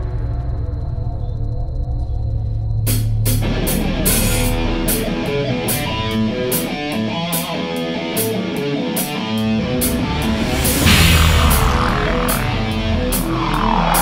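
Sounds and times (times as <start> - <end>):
drums steady beat: 2.9 - 14.0
distorted electric guitar: 3.2 - 14.0
hard rock band playing: 3.4 - 14.0.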